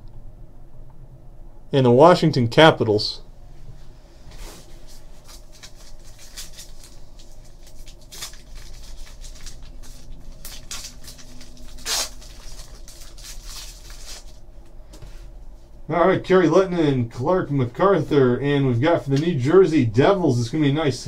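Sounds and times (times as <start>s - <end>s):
foil wrapper crinkling: 4.6s - 14.4s
foil wrapper ripping: 4.8s - 14.4s.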